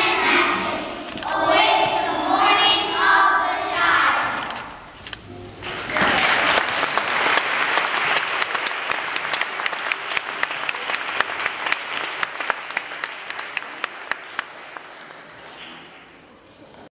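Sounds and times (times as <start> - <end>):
audience applauding: 5.6 - 16.0.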